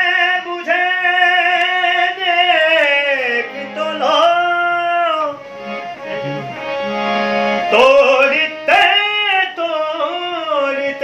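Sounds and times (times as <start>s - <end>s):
man singing: 0.0s - 5.4s, 7.6s - 11.0s
harmonium chords: 0.0s - 11.0s.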